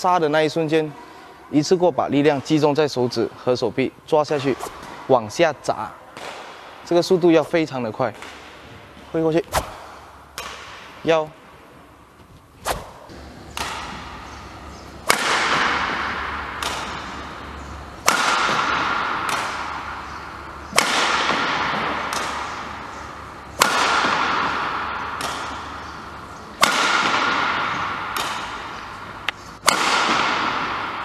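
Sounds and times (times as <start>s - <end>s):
racket smashing shuttlecock: 6.2s - 6.8s, 8.1s - 11.0s, 12.6s - 31.0s.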